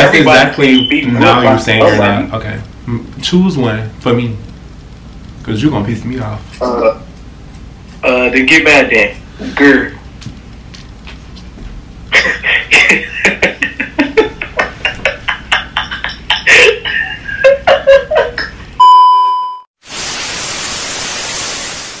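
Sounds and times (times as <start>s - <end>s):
static hiss: 0.0s - 17.4s, 19.8s - 22.0s
high beep: 0.7s - 1.2s, 18.8s - 19.6s.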